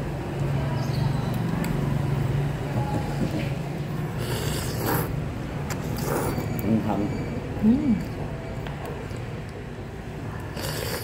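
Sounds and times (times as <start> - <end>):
person slurping noodles: 4.2 - 5.2, 5.8 - 6.5, 10.5 - 11.0.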